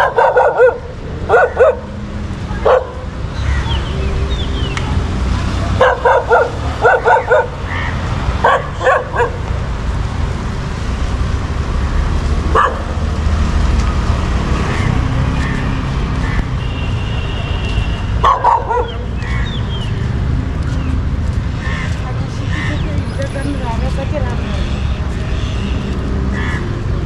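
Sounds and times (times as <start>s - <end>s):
dog barking: 0.0s - 3.1s, 5.6s - 9.5s, 12.5s - 13.0s, 18.2s - 19.1s.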